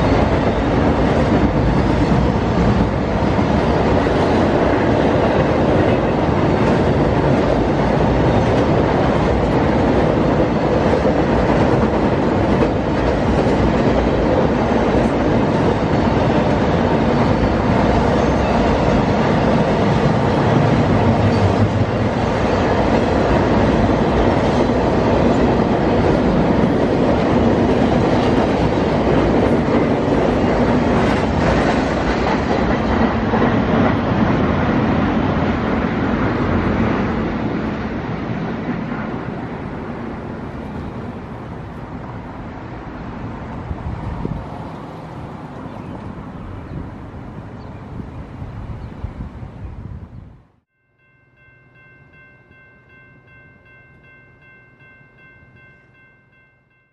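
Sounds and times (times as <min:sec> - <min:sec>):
freight train wheels clickety-clack: 0:00.0 - 0:37.8.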